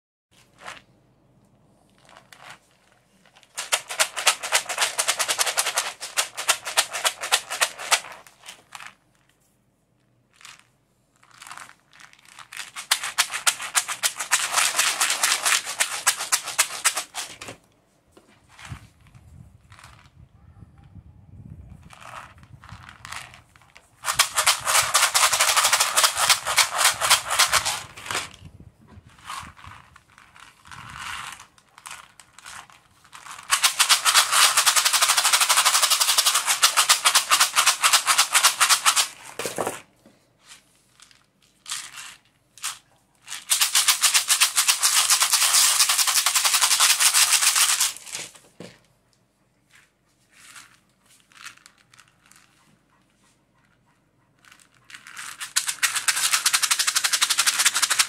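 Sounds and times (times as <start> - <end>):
rawhide rattle shaking: 3.5 - 8.8, 12.3 - 17.4, 22.0 - 28.3, 30.4 - 39.6, 41.1 - 48.4, 54.4 - 58.0.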